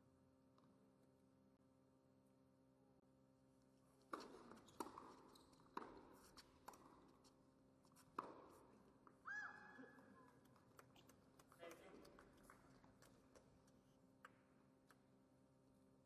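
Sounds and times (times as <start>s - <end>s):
shoe squeal: 4.5s - 6.4s.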